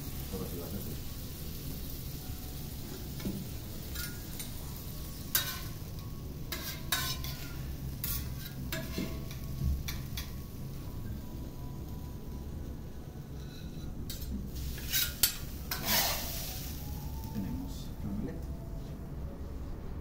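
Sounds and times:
food sizzling: 0:00.0 - 0:18.0
low steady hum: 0:00.0 - 0:20.0
metal spatula scraping on griddle: 0:02.9 - 0:05.9, 0:06.5 - 0:10.4, 0:13.3 - 0:16.8.

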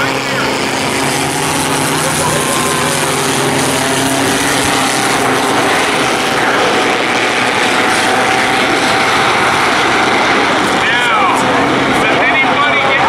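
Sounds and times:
race car engines droning: 0:00.0 - 0:13.0.

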